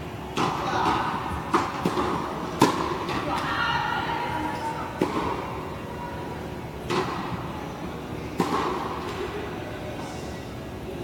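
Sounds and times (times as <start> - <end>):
tennis ball struck by racket: 0.4 - 3.4, 5.0 - 5.4, 8.4 - 9.0.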